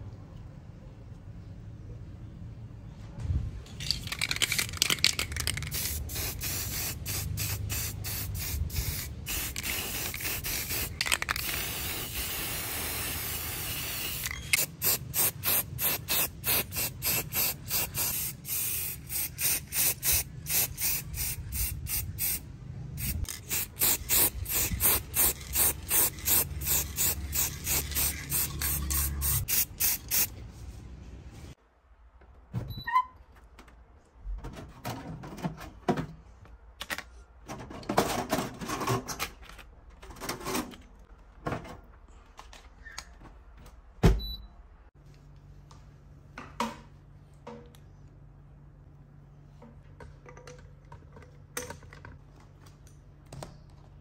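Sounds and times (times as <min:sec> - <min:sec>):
aerosol spray can hissing: 0:05.6 - 0:22.4, 0:23.0 - 0:30.3.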